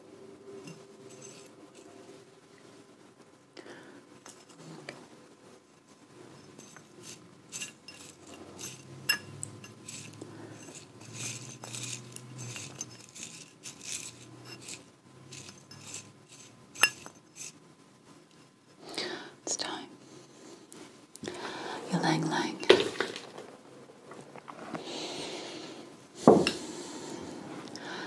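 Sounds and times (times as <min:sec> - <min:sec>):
glass dish clinking: 0:07.6 - 0:09.8.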